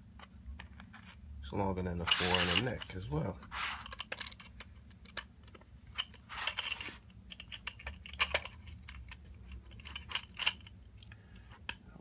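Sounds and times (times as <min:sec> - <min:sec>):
screwdriver and plastic parts clicking: 0:03.7 - 0:11.8.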